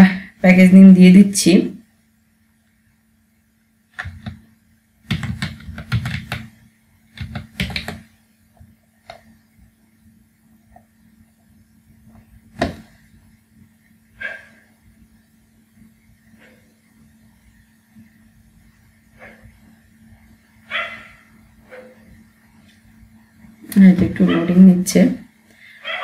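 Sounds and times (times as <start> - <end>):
keyboard typing: 3.9 - 4.4, 5.0 - 8.1.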